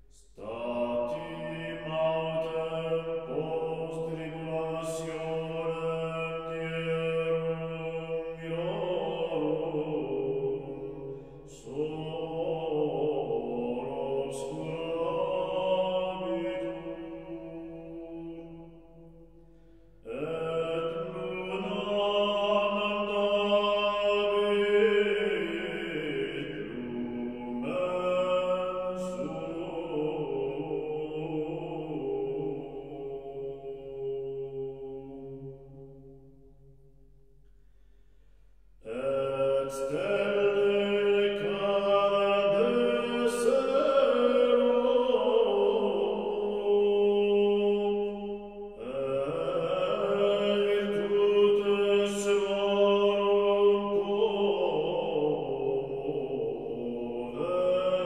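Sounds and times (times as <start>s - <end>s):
long held chant-like notes: 0.0s - 58.0s.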